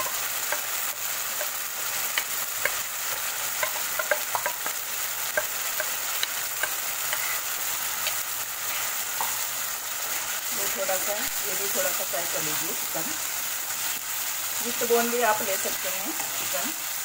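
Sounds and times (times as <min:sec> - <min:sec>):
chicken sizzling in hot oil: 0:00.0 - 0:17.0
steel spoon scraping a pan: 0:01.3 - 0:10.4.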